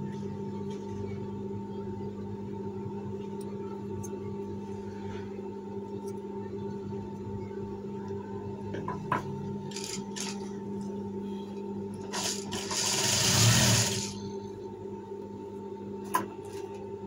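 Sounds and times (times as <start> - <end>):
sewing machine humming and stitching: 9.7 - 10.4, 12.1 - 14.2.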